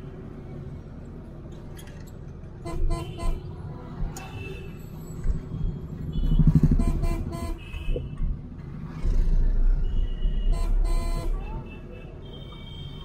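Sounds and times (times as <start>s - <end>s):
car engine and road rumble: 0.0s - 11.7s
car horns honking: 2.6s - 3.5s, 6.1s - 8.1s, 10.0s - 13.0s.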